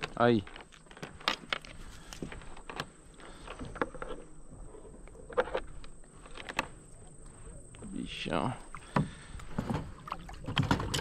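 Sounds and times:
fish thrashing and splashing: 0:08.6 - 0:11.0.

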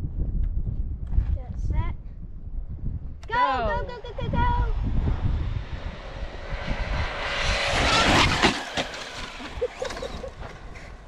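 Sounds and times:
electric motor whine: 0:03.4 - 0:11.0
tyre rush: 0:04.7 - 0:11.0.

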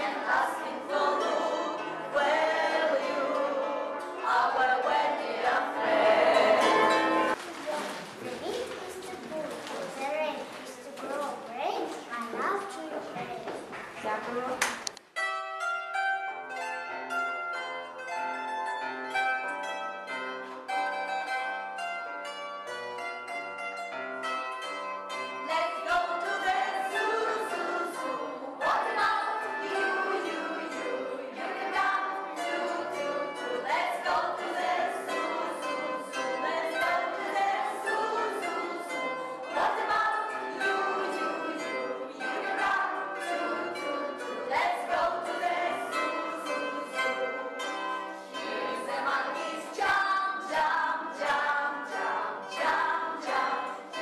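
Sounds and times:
children's choir singing: 0:00.0 - 0:07.9, 0:25.4 - 0:54.0
plucked string instrument: 0:00.0 - 0:13.8, 0:14.4 - 0:54.0.

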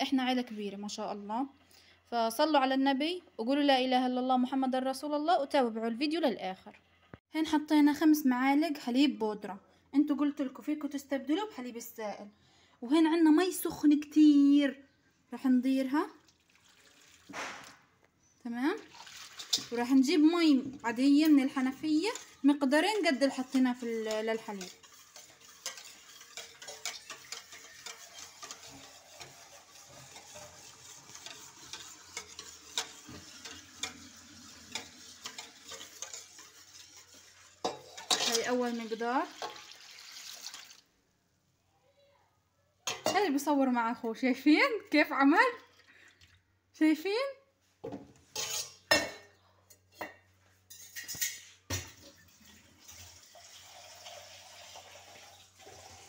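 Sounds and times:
running tap water: 0:16.2 - 0:17.4, 0:18.8 - 0:19.8, 0:24.8 - 0:37.6, 0:38.6 - 0:40.9, 0:52.0 - 0:56.0
spoon stirring in a container: 0:18.9 - 0:39.9, 0:48.3 - 0:48.9
dishes clinking: 0:24.1 - 0:29.3, 0:37.6 - 0:38.5, 0:42.8 - 0:43.4, 0:48.3 - 0:52.1.

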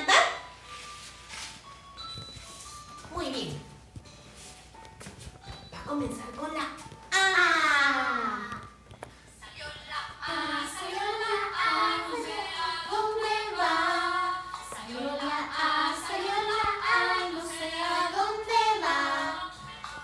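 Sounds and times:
girl and woman singing: 0:09.4 - 0:20.0.

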